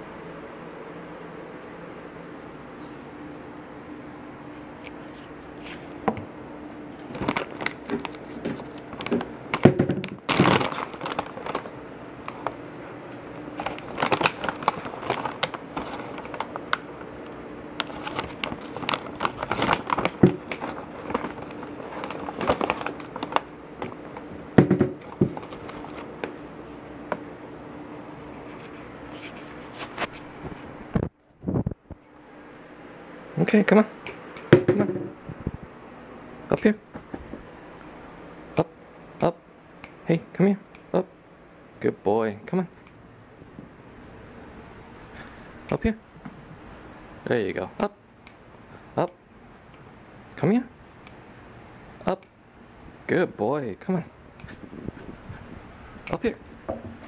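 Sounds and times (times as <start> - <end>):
foil pouch crinkling: 7.0 - 12.6, 13.2 - 16.9, 17.8 - 24.4, 25.0 - 26.3.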